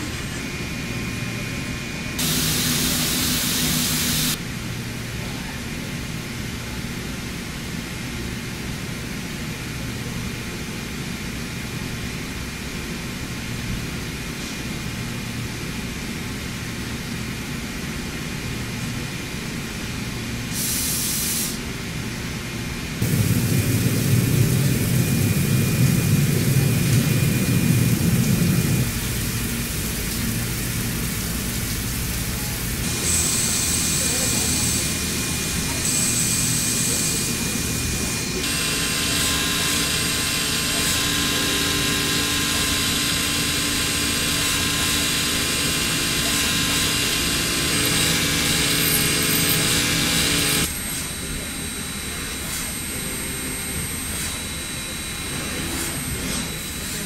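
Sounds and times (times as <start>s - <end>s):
coolant rushing: 2.2s - 4.4s, 23.0s - 40.8s
hissing spray: 2.2s - 4.4s, 23.0s - 40.9s
machine tools humming: 2.2s - 4.4s, 23.0s - 57.0s.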